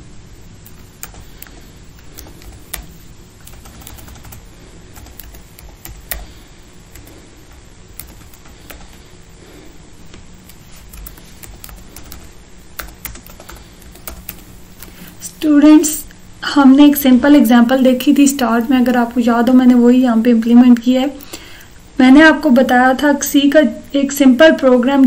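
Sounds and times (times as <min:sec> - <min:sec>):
typing on computer keyboard: 0:00.6 - 0:09.1, 0:10.4 - 0:15.2.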